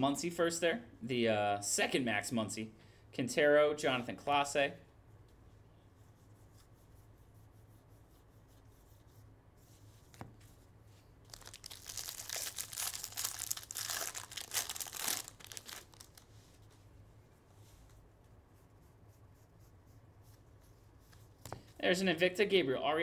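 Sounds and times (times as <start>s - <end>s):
foil wrapper tearing and crinkling: 11.3s - 16.3s.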